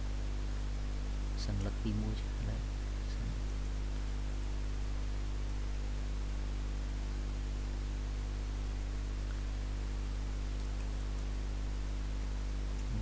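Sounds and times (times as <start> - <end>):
low electrical hum: 0.0 - 13.0
even hiss: 1.3 - 4.2, 12.8 - 13.0.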